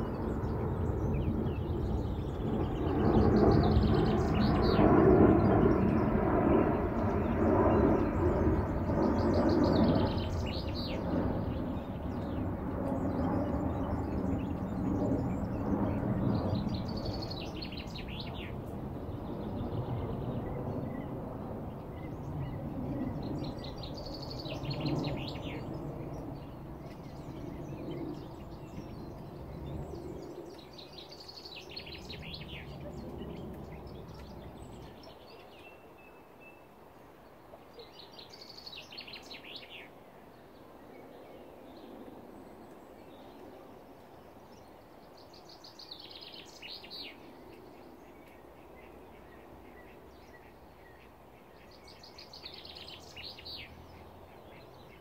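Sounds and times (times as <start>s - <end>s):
songbird chirping: 0.0s - 55.0s.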